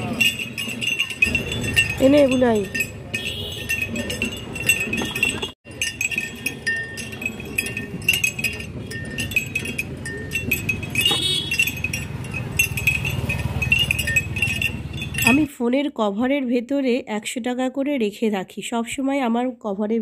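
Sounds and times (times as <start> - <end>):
rollers rumbling: 0.0 - 15.5
small bells jingling: 0.0 - 15.6.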